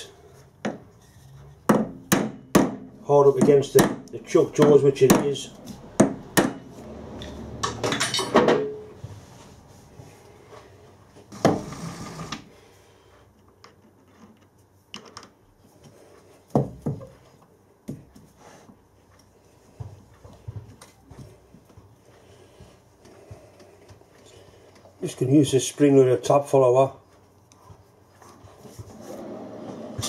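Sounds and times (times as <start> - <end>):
tools clinking: 7.2 - 8.8.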